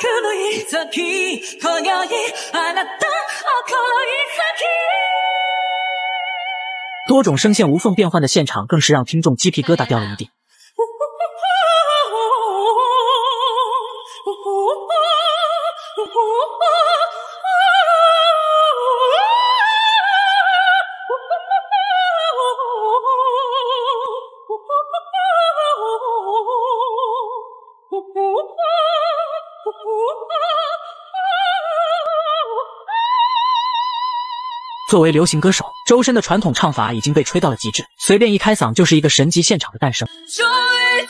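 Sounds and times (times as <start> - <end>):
man singing high wordless vocalise: 7.0 - 10.4, 34.8 - 41.0.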